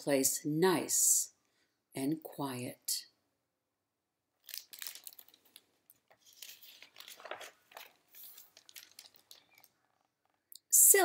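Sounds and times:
book pages rustling and crinkling: 4.4 - 10.4.

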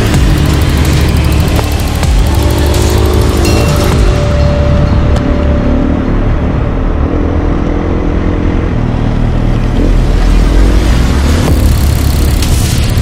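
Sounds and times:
dirt bike engine revving: 0.0 - 5.1, 9.8 - 13.0.

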